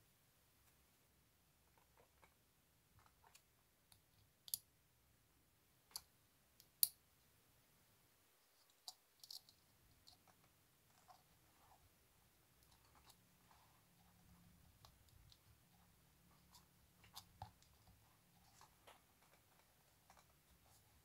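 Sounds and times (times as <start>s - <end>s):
small metal parts clicking: 8.7s - 10.3s.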